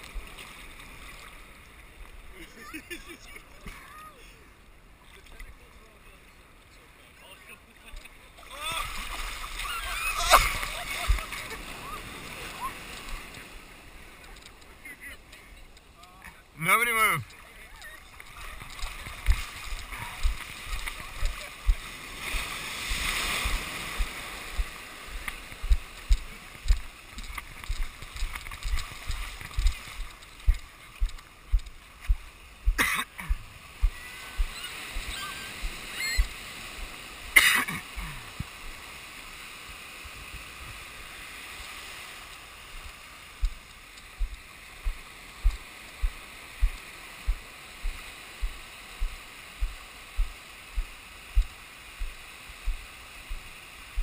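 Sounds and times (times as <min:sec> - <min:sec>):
surf washing: 0:00.0 - 0:54.0
sharp water splashes: 0:08.7 - 0:14.5, 0:17.0 - 0:38.9, 0:41.4 - 0:54.0
low thuds: 0:20.2 - 0:21.8, 0:28.7 - 0:36.3, 0:43.4 - 0:43.6, 0:44.2 - 0:54.0.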